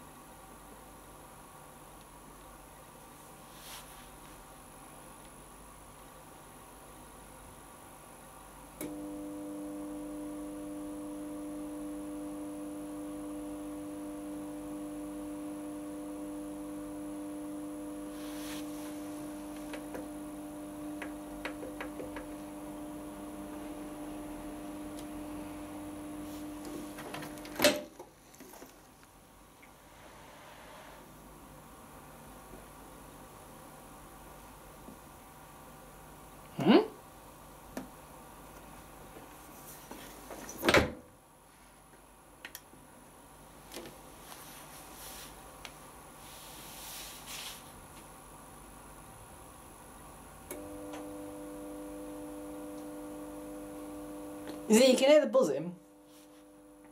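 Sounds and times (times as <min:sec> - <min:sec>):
dishwasher running hum: 0:10.2 - 0:27.9.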